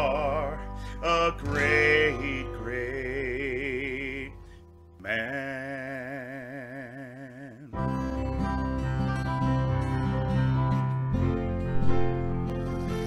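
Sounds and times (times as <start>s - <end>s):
acoustic guitar strumming: 0.0s - 7.1s, 7.7s - 13.0s
person singing with vibrato: 0.0s - 8.0s.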